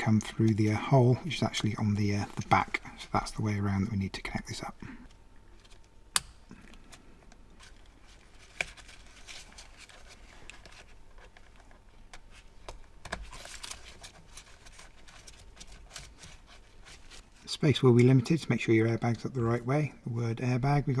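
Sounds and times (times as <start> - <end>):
rustling handling: 6.8 - 18.2.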